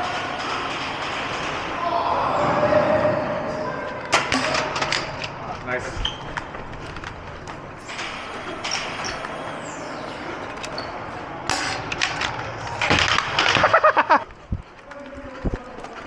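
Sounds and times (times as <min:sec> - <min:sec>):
distant people shouting: 0:00.0 - 0:04.2
steady background noise: 0:00.0 - 0:16.0.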